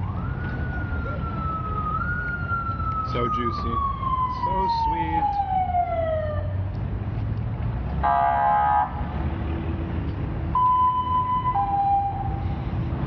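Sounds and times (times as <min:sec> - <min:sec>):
street traffic rumbling: 0:00.0 - 0:13.0
siren gliding down in pitch: 0:00.1 - 0:06.5, 0:10.6 - 0:12.4
vehicle horn blast: 0:08.0 - 0:08.9.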